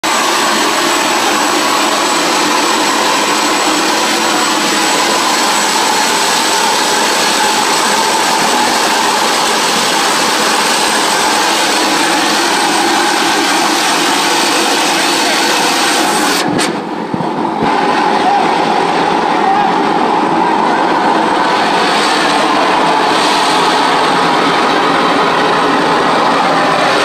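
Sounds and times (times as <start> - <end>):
gas turbine jet rush: 0.0 - 27.0
high steady whistle: 0.1 - 27.0.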